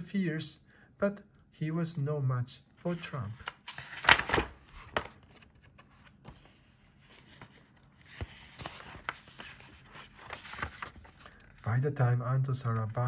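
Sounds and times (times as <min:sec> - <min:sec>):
paper pages rustling: 0:02.9 - 0:11.7.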